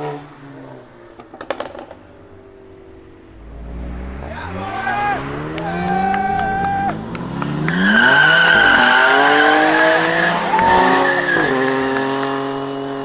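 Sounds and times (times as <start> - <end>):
car engine revving: 0.0 - 13.0
tyres squealing: 7.7 - 11.7.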